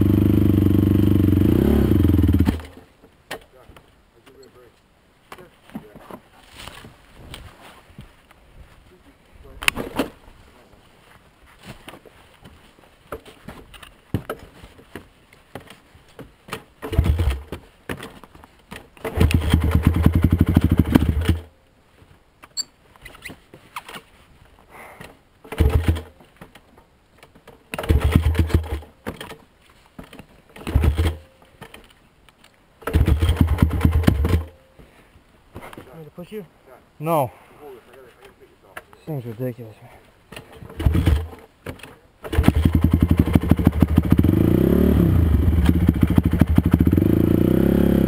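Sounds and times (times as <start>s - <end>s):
quad engine revving: 0.0s - 2.7s, 16.9s - 17.4s, 19.1s - 21.4s, 25.6s - 26.1s, 27.8s - 28.8s, 32.9s - 34.5s, 40.8s - 41.4s, 42.3s - 48.0s.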